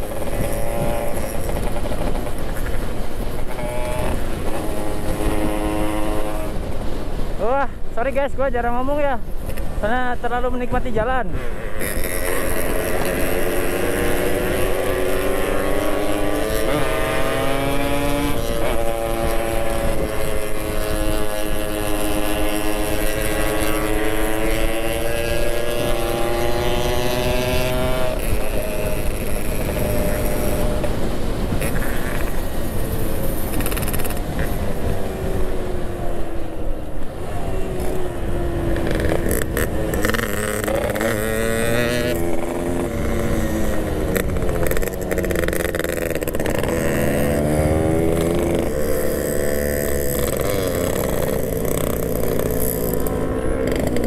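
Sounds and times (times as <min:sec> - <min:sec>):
motorcycle engine running: 0:00.0 - 0:07.4, 0:11.4 - 0:54.0.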